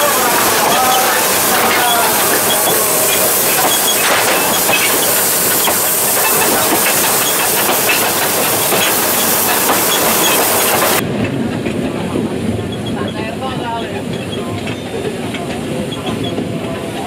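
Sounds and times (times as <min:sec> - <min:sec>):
loud steam hiss: 0:00.0 - 0:11.0
locomotive engine rumble: 0:00.0 - 0:17.0
wheels clicking on track: 0:00.0 - 0:17.0.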